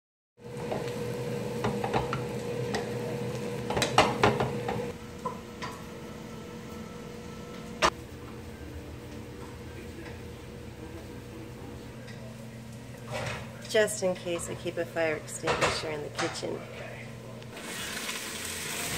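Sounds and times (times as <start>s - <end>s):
mushrooms sizzling in a frying pan: 0.4s - 4.9s, 17.6s - 18.9s
steady hum: 0.8s - 17.6s.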